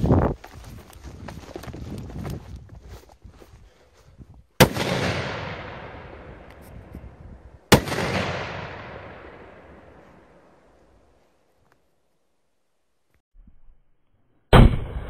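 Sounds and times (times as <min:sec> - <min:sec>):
running footsteps through grass: 0:00.0 - 0:04.6
firecracker bangs: 0:07.7 - 0:09.3.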